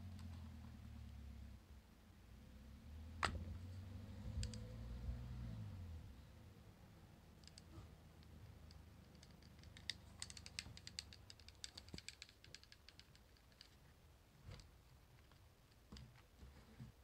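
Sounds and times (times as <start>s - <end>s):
plastic housing clicking: 7.4s - 13.8s.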